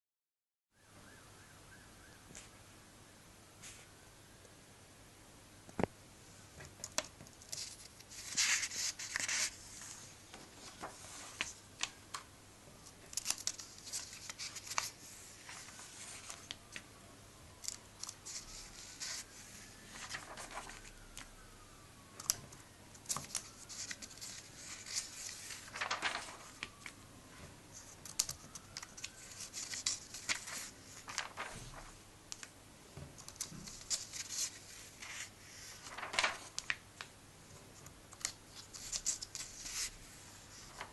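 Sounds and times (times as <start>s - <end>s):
pages turning: 6.8s - 12.3s, 12.9s - 16.8s, 17.6s - 21.3s, 23.0s - 27.0s, 27.7s - 32.5s, 33.2s - 37.1s, 38.2s - 40.9s.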